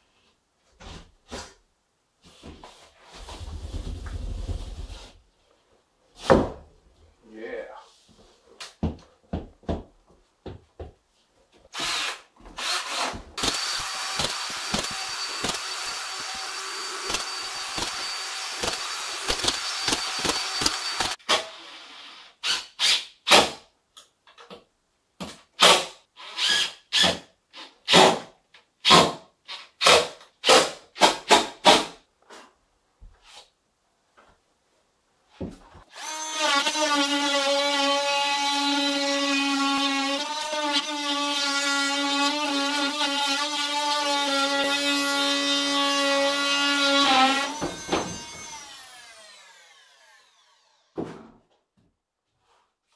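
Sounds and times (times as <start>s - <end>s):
cordless drill driving screws: 11.7s - 23.0s, 35.9s - 37.5s, 47.0s - 51.0s
power tool whining: 11.8s - 21.2s, 47.1s - 51.0s.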